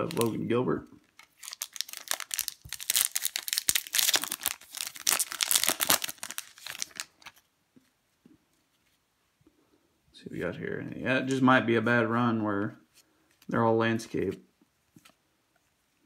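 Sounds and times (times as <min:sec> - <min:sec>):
foil wrapper crinkling and tearing: 0:00.0 - 0:00.4, 0:01.2 - 0:07.4.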